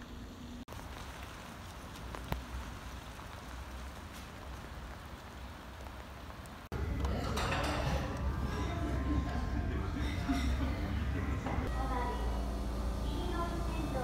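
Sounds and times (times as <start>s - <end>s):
light rain on wet pavement: 0.6s - 6.7s
raindrops ticking: 0.7s - 7.1s
busy background noise: 6.7s - 14.0s.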